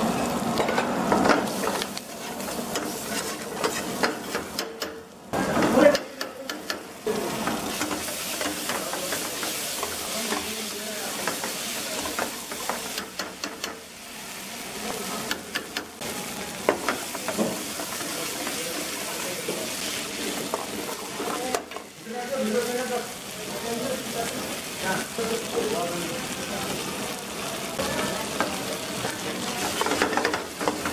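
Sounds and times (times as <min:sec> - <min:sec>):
metal ladle scraping a pan: 0:01.2 - 0:04.6
paste sizzling in oil: 0:01.2 - 0:04.6, 0:05.4 - 0:30.9.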